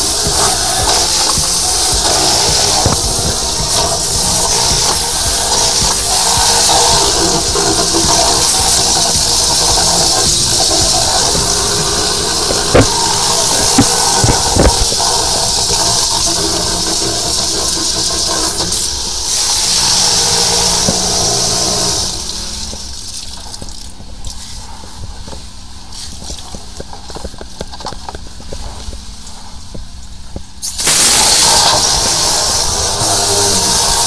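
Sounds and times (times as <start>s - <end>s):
water spraying and rushing in pipe: 0.0s - 24.8s, 30.6s - 34.0s.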